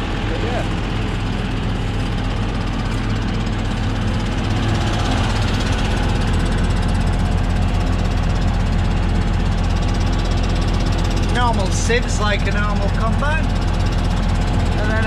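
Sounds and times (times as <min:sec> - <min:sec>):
combine harvester engine drone: 0:00.0 - 0:15.0.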